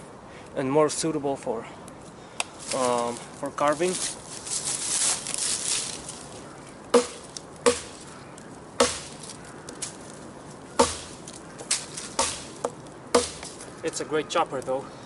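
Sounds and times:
scraping rustle: 2.6 - 6.6, 9.1 - 12.7
knife chopping into wood: 6.9 - 8.0, 8.8 - 9.2, 10.8 - 13.6.

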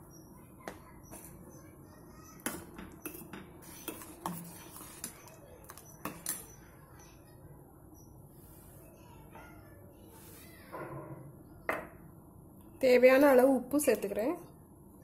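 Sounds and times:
ladle clinking and scraping pot: 2.4 - 6.6.

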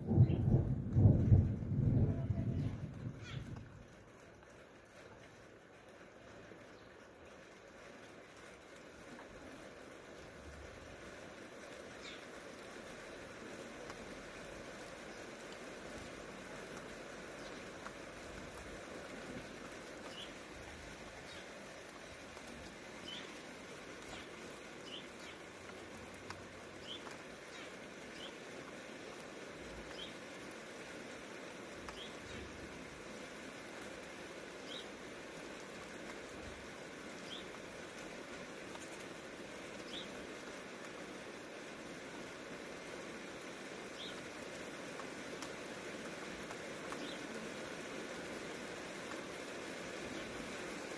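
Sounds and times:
light rain pattering: 0.0 - 50.9
small bird chirping: 20.0 - 20.4, 23.0 - 23.4, 24.1 - 25.4, 26.8 - 28.4, 29.9 - 30.2, 37.2 - 37.6, 39.9 - 40.1, 44.0 - 44.2.

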